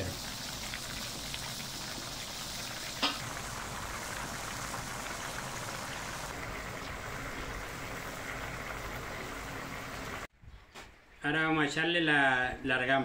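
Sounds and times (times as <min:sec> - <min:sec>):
rice bubbling in a pan: 0:00.0 - 0:10.3.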